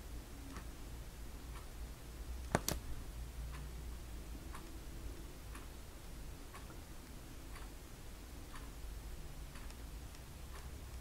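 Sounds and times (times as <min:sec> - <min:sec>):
clock ticking: 0:04.5 - 0:05.8, 0:07.5 - 0:07.8, 0:08.4 - 0:11.0.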